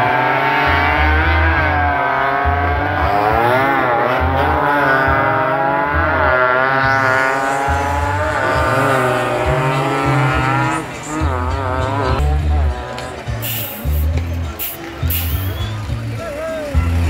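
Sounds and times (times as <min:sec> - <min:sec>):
racing motorcycles revving past: 0:00.0 - 0:13.2.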